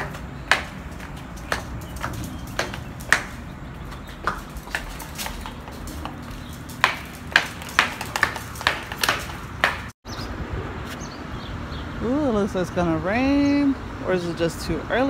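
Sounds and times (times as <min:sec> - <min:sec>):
dog steps: 0:00.0 - 0:10.0.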